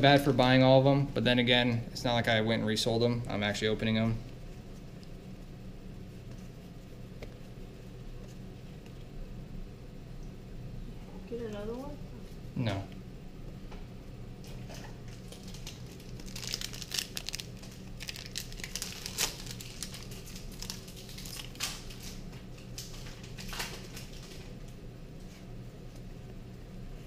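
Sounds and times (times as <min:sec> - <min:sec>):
steady low hum: 0:00.0 - 0:27.0
foil wrappers crinkling and tearing: 0:15.0 - 0:24.6.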